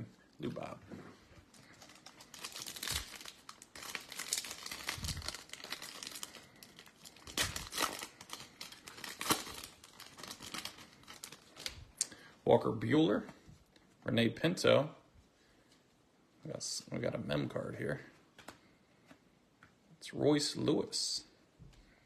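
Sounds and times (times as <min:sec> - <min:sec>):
foil wrapper tearing and crinkling: 0:01.6 - 0:11.9.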